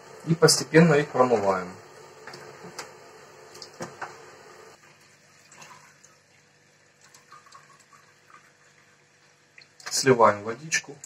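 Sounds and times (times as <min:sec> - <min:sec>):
tap water running into pot: 0:01.3 - 0:10.0.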